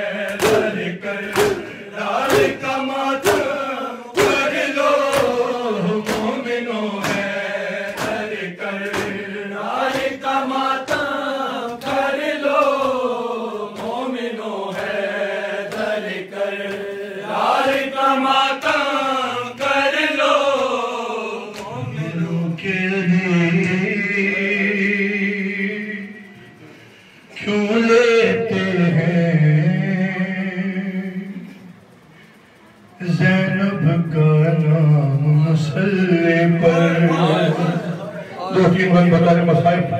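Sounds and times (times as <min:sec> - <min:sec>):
men chanting through microphone: 0:00.0 - 0:39.9
hands beating chest: 0:00.3 - 0:10.2.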